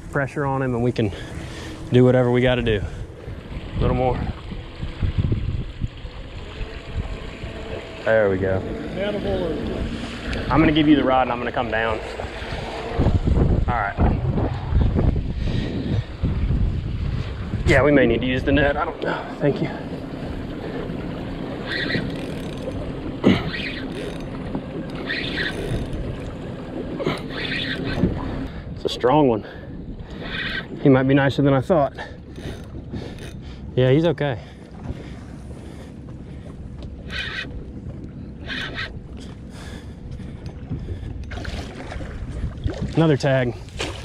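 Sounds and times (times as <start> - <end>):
fishing reel drag buzzing: 0.0 - 13.5, 20.5 - 26.4, 27.0 - 28.6, 30.0 - 30.9, 32.0 - 33.7, 36.9 - 40.2
boat motor running: 0.0 - 44.0
water noise: 0.0 - 44.0
wind: 0.0 - 44.0.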